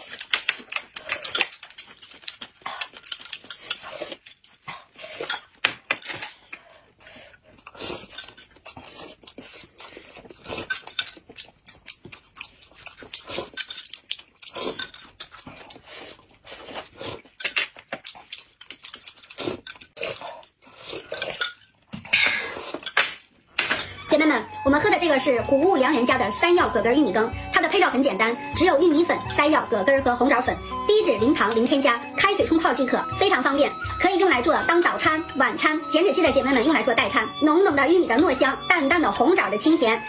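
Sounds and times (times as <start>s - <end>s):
people sipping and chewing: 0.0s - 24.0s.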